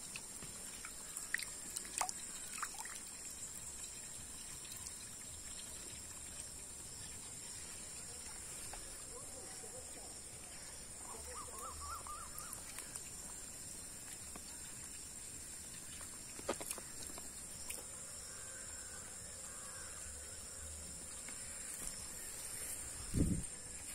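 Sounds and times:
insects droning: 0:00.0 - 0:23.9
warbling animal call: 0:11.0 - 0:12.7.

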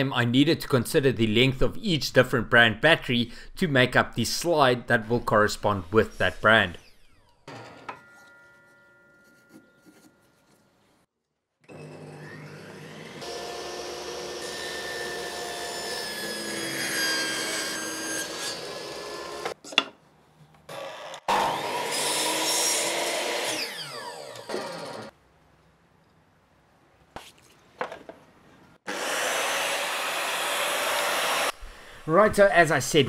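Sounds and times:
table saw cutting wood: 0:05.1 - 0:08.2, 0:11.7 - 0:19.6, 0:20.7 - 0:25.1, 0:28.8 - 0:31.9
miter saw cutting: 0:11.7 - 0:19.6, 0:20.7 - 0:25.1, 0:28.8 - 0:31.8.

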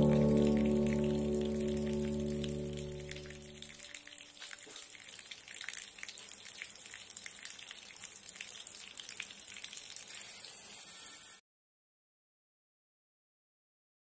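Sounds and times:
water jet splashing on plants: 0:00.0 - 0:10.9.

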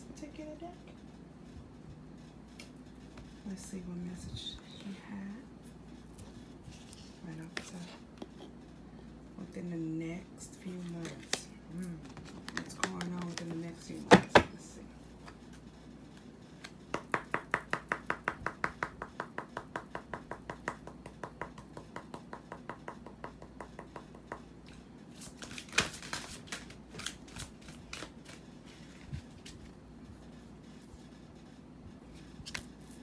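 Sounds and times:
cards being shuffled: 0:25.1 - 0:29.7, 0:32.2 - 0:33.0.

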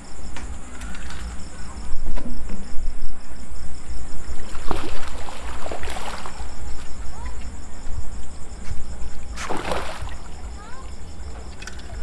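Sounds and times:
steady low rumble: 0:00.0 - 0:12.0
fish splashing at surface: 0:04.4 - 0:06.5, 0:09.4 - 0:10.3.

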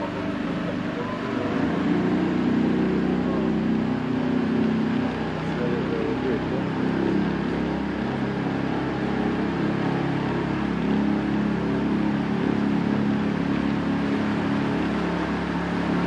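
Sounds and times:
boat engine humming: 0:00.0 - 0:16.0.

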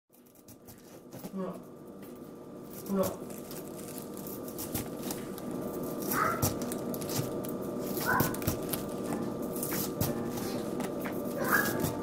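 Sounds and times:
knife crunching through cabbage: 0:02.8 - 0:10.7.

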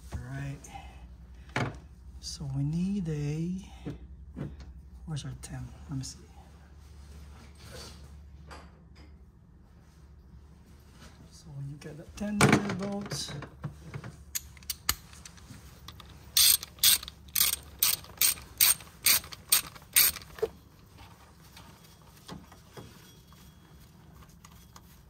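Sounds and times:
hand ratchet clicking: 0:15.9 - 0:20.5.

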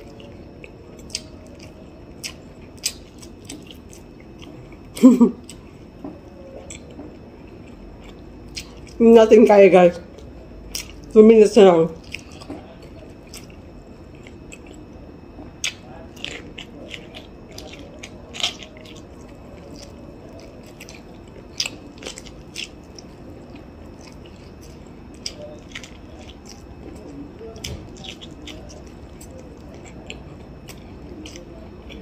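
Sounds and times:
crunching corn kernels: 0:15.6 - 0:32.0.

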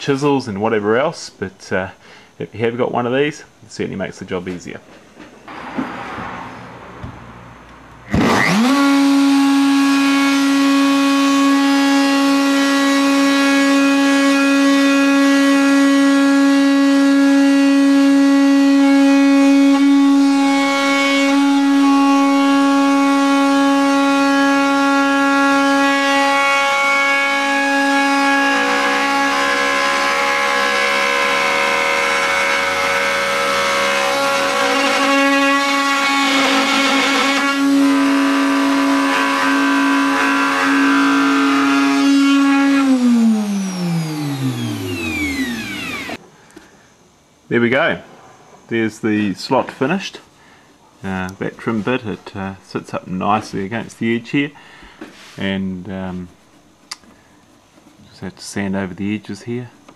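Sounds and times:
router motor whining: 0:08.0 - 0:46.2
router bit cutting plywood: 0:08.1 - 0:46.2.

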